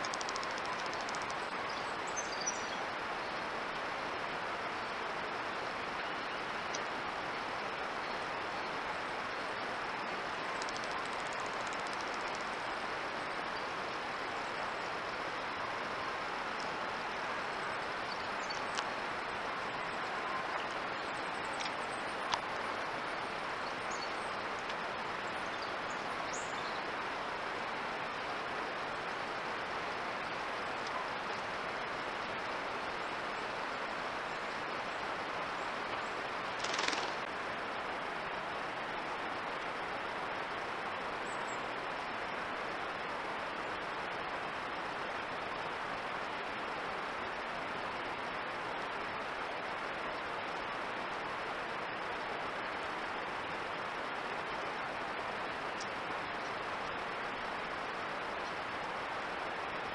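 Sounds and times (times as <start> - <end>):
steady outdoor hiss: 0.0 - 59.9.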